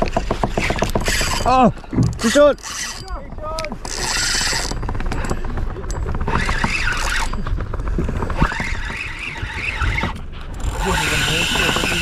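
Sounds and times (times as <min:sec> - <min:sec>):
fishing reel squealing: 0:01.0 - 0:01.5, 0:02.2 - 0:03.2, 0:03.8 - 0:04.9, 0:06.3 - 0:07.4, 0:08.4 - 0:12.0
fishing reel rapid clicking: 0:02.2 - 0:05.0, 0:06.2 - 0:07.4, 0:08.4 - 0:12.0.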